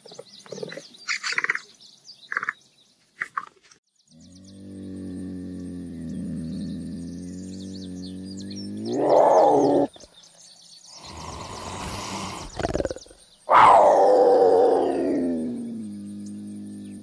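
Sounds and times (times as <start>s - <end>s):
cougar growl: 4.1s - 10.0s, 11.0s - 17.0s
cougar yowling call: 4.7s - 9.9s, 12.8s - 17.0s
cougar hissing: 5.0s - 9.9s, 11.0s - 17.0s.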